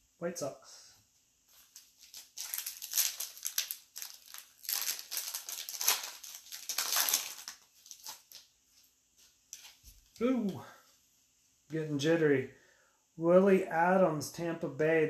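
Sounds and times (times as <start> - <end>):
plastic foil wrapper crinkling: 1.6 - 8.5.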